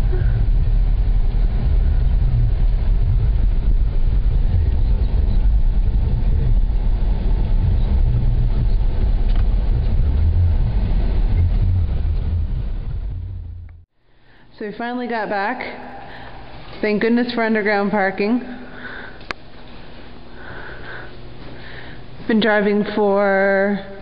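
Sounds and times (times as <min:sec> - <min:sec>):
car engine and tyres rumbling: 0:00.0 - 0:13.9.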